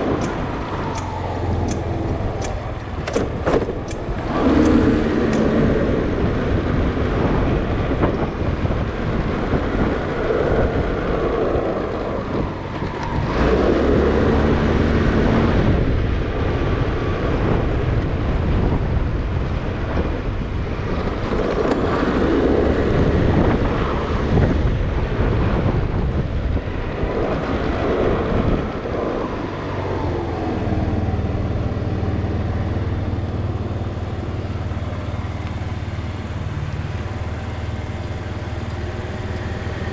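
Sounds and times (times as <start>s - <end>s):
motorcycle engine revving: 0.0s - 8.1s
wind and road noise: 0.0s - 39.9s.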